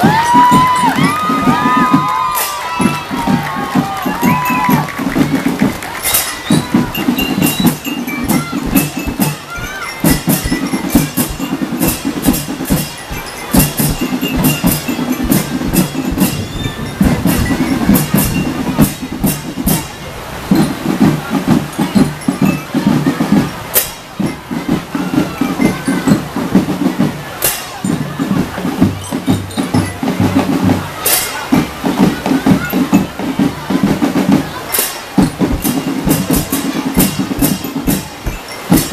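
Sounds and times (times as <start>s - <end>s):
bell lyres and pianicas playing tune: 0.0s - 38.9s
marching drums: 0.0s - 38.9s.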